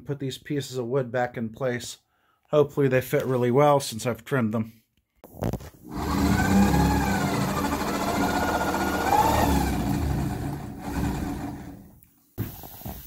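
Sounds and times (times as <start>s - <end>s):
shop vacuum running: 5.9s - 11.9s.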